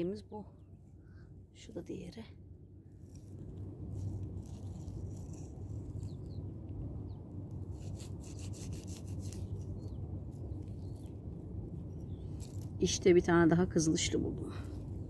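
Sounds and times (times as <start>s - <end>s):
low wind rumble on microphone: 0.0s - 15.0s
rustling and scraping in grass: 2.9s - 6.4s, 7.5s - 13.0s.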